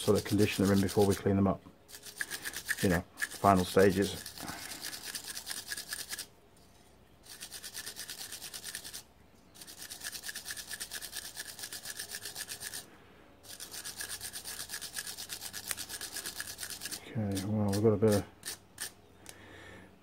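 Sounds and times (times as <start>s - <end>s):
wire brush scrubbing metal: 0.0s - 6.3s, 13.4s - 19.0s.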